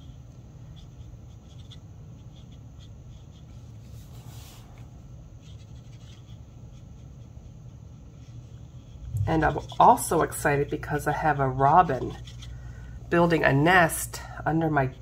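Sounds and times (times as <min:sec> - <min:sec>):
marker scratching on card: 0:00.0 - 0:04.8, 0:05.4 - 0:12.5
low hum: 0:08.8 - 0:13.2.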